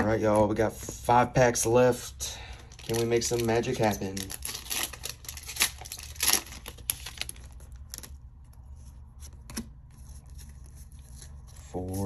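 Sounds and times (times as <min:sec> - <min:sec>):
foil wrapper crinkling: 0:02.7 - 0:08.2.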